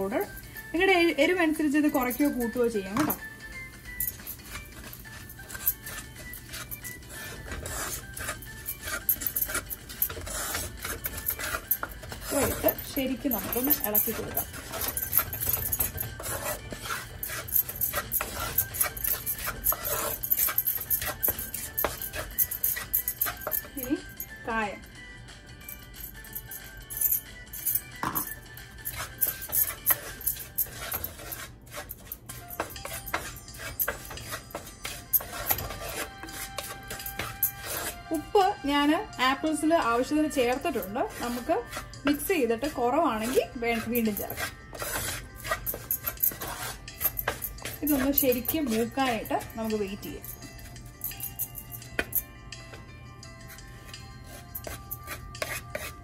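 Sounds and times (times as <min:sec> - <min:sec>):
wooden spatula scraping a pot: 0:04.1 - 0:23.7, 0:28.9 - 0:38.6, 0:39.5 - 0:50.2, 0:54.2 - 0:56.0.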